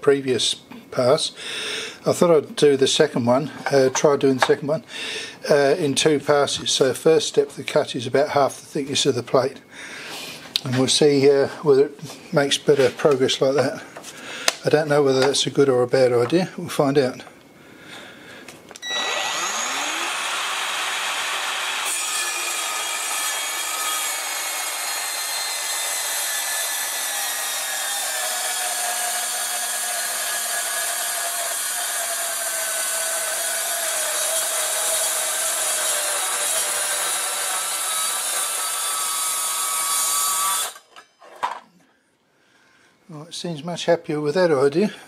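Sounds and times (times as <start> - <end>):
circular saw cutting steel: 18.8 - 41.4.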